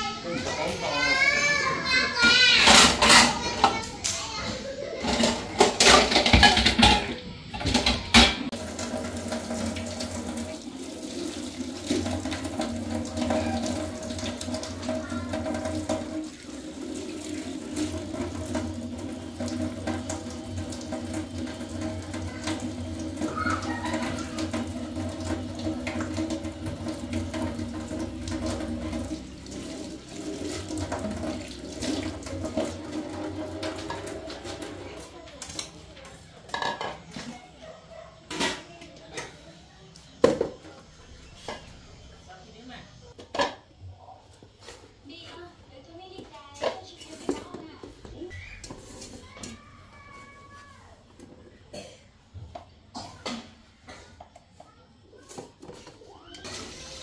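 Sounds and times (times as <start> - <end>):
water running from a tap: 7.8 - 36.0, 56.1 - 57.0.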